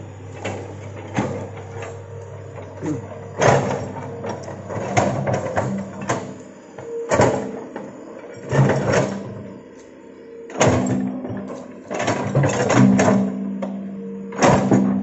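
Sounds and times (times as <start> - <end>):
excavator diesel engine running: 0.0 - 9.6.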